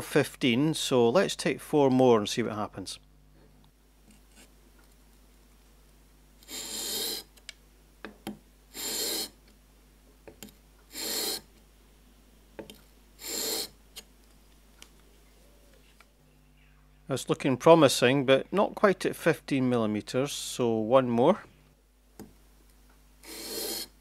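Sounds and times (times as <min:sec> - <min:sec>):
blade scraping on whetstone: 0:06.4 - 0:07.3, 0:08.7 - 0:09.4, 0:10.9 - 0:11.5, 0:13.2 - 0:13.7, 0:23.2 - 0:24.0.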